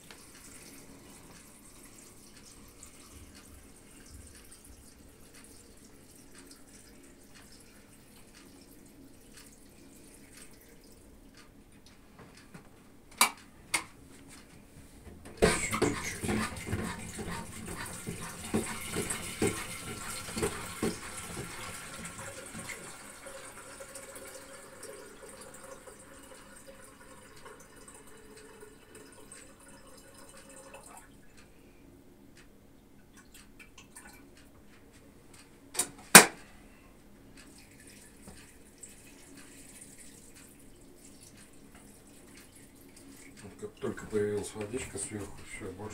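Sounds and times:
tap running water into kettle: 15.2s - 30.9s.

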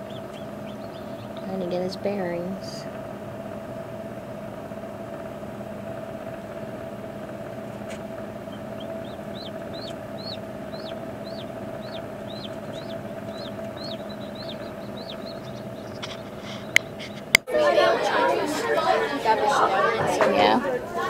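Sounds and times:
chick peeping: 0.0s - 2.0s, 7.9s - 17.4s
steady mechanical hum: 0.0s - 21.0s.

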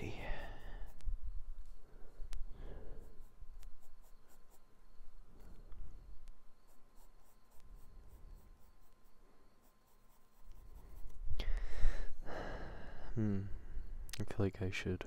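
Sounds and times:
pencil scratching on paper: 3.0s - 4.7s, 6.6s - 11.2s.

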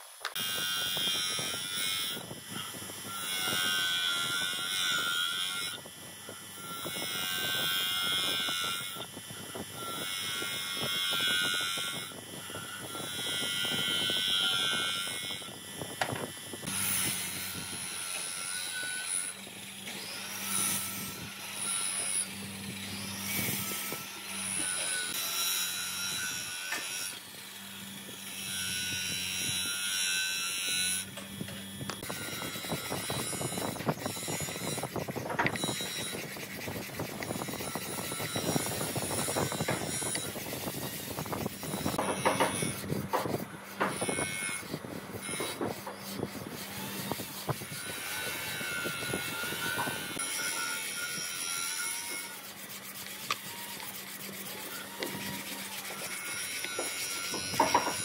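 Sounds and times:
bench grinder grinding wood: 0.2s - 58.0s
wood rubbed on sandpaper: 32.0s - 58.0s.

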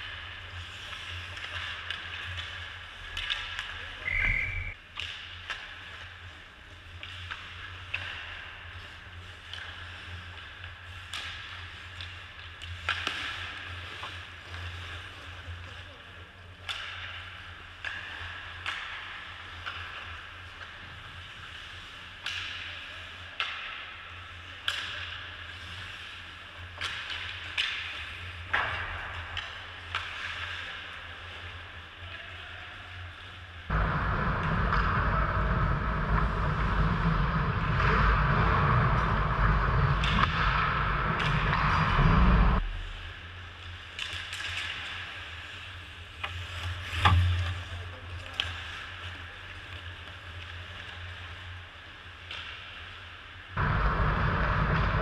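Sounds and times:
hockey sticks and puck clicking: 0.0s - 14.8s, 16.5s - 32.1s, 34.2s - 42.6s, 43.6s - 47.5s, 52.2s - 53.1s
loud steady rushing noise: 33.7s - 42.8s, 53.6s - 55.0s.

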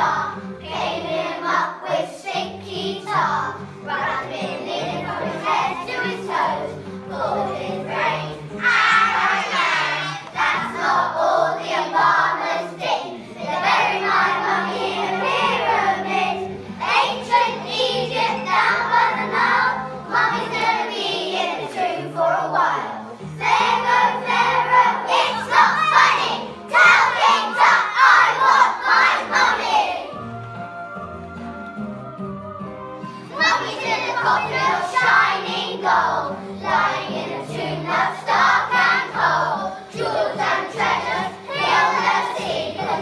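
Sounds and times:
children singing in unison: 0.0s - 43.0s
backing music with bass line: 13.2s - 43.0s.

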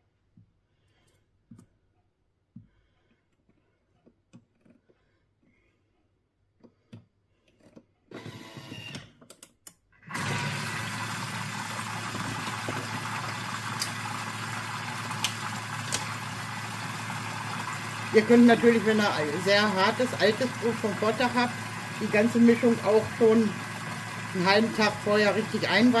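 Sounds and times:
mechanical whirr with clicks: 8.1s - 9.1s
kitchen mixer blending liquid: 10.0s - 26.0s.

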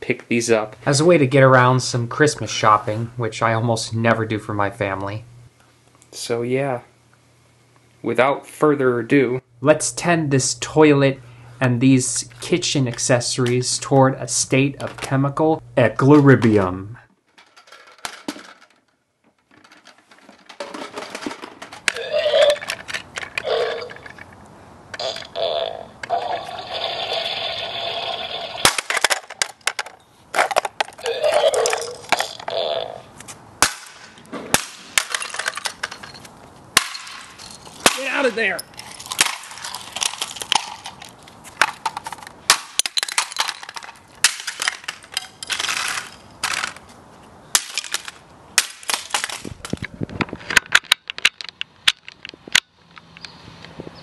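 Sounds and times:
toy electronic voice: 21.9s - 22.7s, 23.4s - 24.0s, 25.0s - 28.6s, 31.0s - 33.0s
plastic toy cracking apart: 28.6s - 31.0s, 38.9s - 46.8s.

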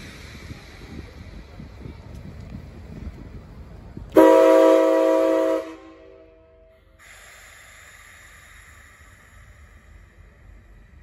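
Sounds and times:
steam locomotive whistle: 4.2s - 6.6s
steady hiss: 7.0s - 11.0s.

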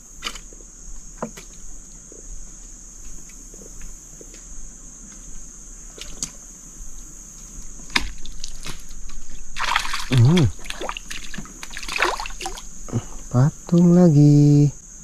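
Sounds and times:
water splashing and sloshing: 7.8s - 13.2s.

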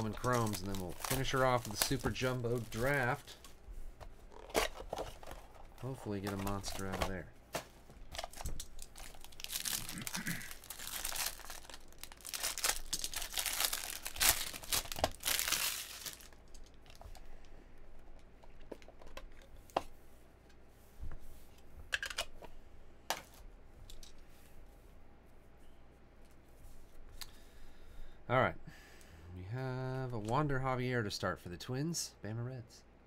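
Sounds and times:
foil wrapper tearing and crinkling: 0.0s - 3.4s, 8.1s - 17.0s.

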